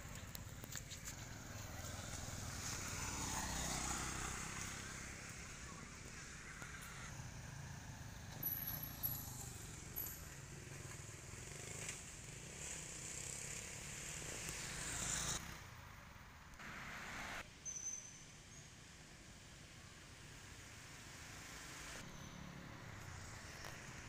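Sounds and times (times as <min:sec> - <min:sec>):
motor vehicle passing: 0:00.0 - 0:15.8
road traffic rumble: 0:00.0 - 0:17.5, 0:18.5 - 0:24.0.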